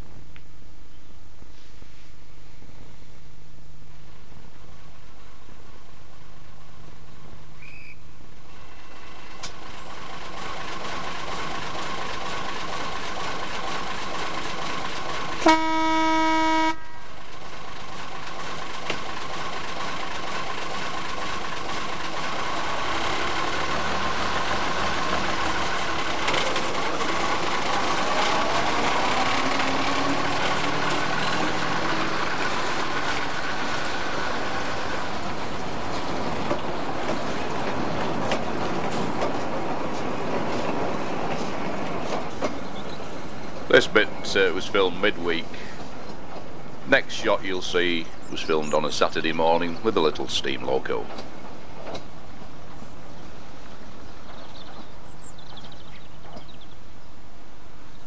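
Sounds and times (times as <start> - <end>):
diesel locomotive engine: 0.0 - 58.0
train horn toot: 15.4 - 17.2.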